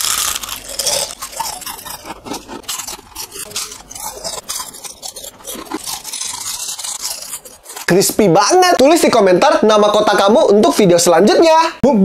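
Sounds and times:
crunching crispy cookie: 0:00.0 - 0:08.8.

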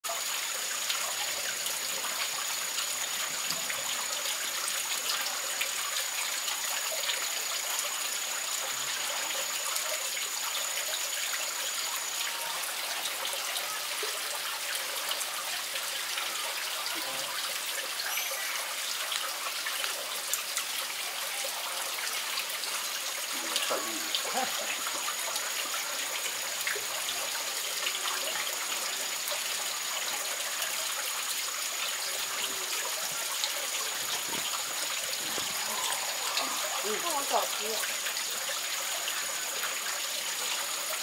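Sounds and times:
faint high chirps: 0:17.9 - 0:19.3.

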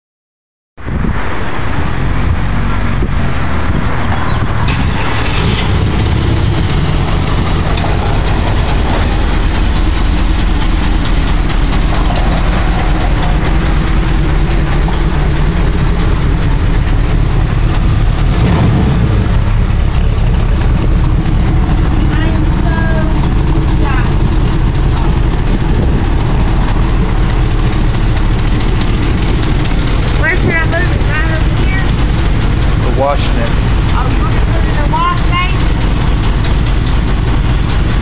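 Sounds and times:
car engine idling: 0:00.8 - 0:38.0.

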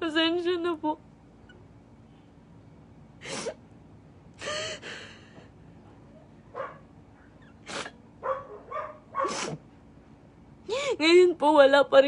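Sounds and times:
woman sobbing: 0:04.4 - 0:05.3, 0:10.7 - 0:11.2.

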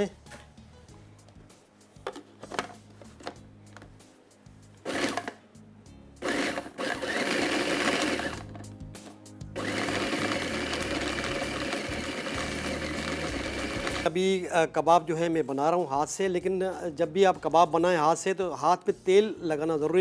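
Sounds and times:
food processor grinding: 0:04.9 - 0:05.4, 0:06.2 - 0:08.6, 0:09.6 - 0:14.1.

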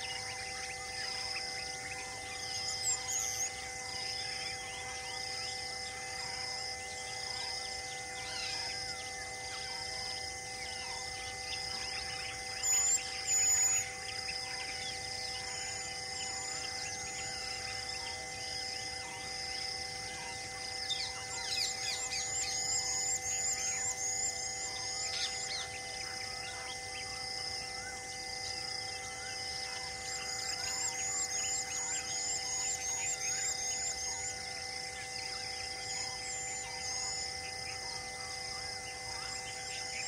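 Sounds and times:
birds chirping and calling: 0:00.0 - 0:18.3, 0:20.0 - 0:27.2, 0:28.9 - 0:34.3
steady droning tones: 0:00.0 - 0:40.0.

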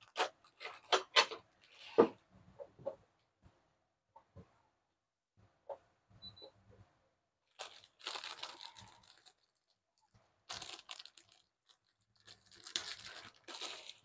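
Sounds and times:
packaging crinkling: 0:07.5 - 0:09.8, 0:10.4 - 0:14.0.

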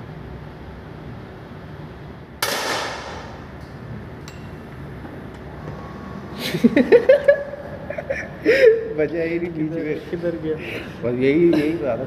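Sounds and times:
air pistol shot with echo: 0:02.4 - 0:03.5.

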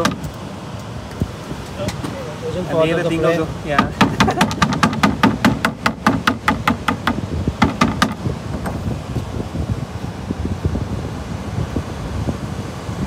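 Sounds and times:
mallet pounding on cutting board: 0:03.8 - 0:08.2.

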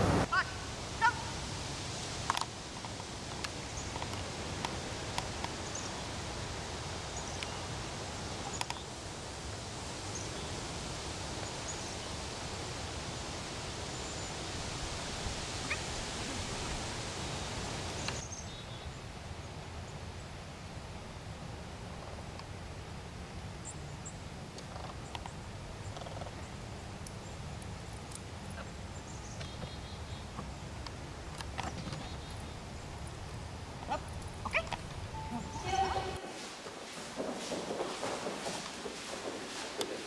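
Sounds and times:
rushing hiss: 0:00.0 - 0:18.4, 0:34.3 - 0:40.0
faint high chirps: 0:35.1 - 0:36.3.

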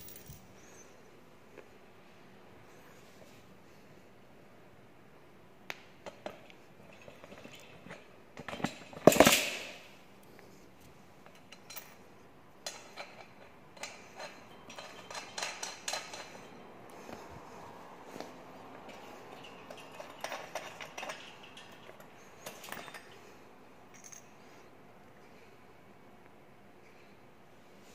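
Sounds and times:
light metallic clicks and clinks: 0:00.0 - 0:00.6, 0:11.2 - 0:17.0, 0:18.2 - 0:24.5.

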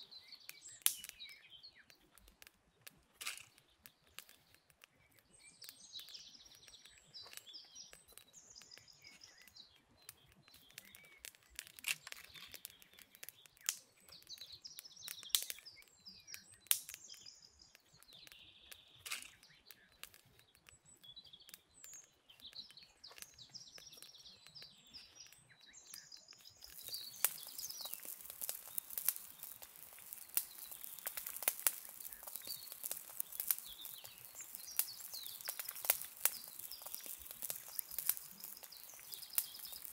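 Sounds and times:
pot bubbling over fire: 0:00.0 - 0:39.9
small birds chirping: 0:00.0 - 0:39.9
wood fire crackling: 0:00.0 - 0:39.9.

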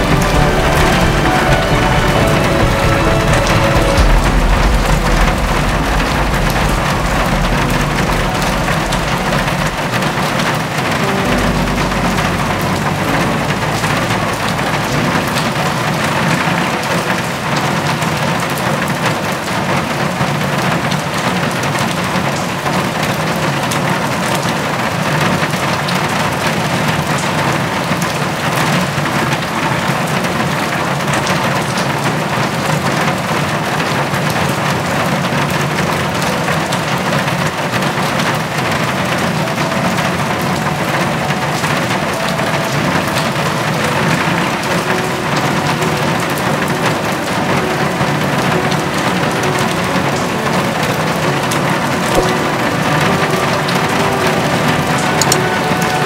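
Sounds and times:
low rumble: 0:00.0 - 0:16.7
rain falling and splashing: 0:00.0 - 0:56.0.

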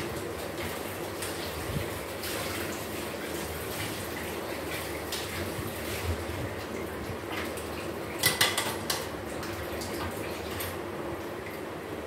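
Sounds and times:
kitchenware clinking: 0:08.2 - 0:09.0.

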